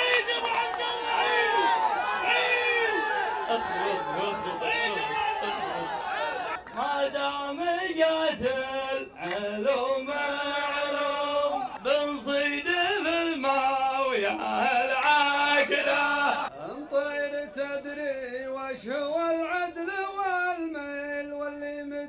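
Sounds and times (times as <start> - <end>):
men chanting poetry: 0.0 - 19.8.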